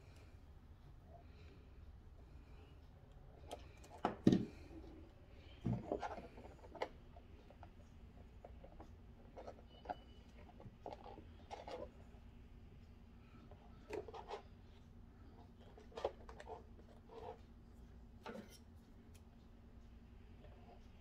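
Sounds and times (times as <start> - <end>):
knocks and scrapes on plastic: 5.6 - 6.9.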